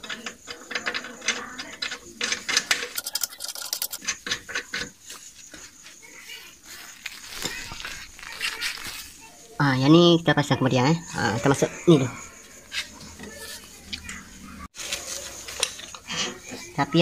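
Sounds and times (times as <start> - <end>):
tools scraping and rubbing: 2.0 - 5.9
sharp clicks and ticks: 2.7 - 4.2.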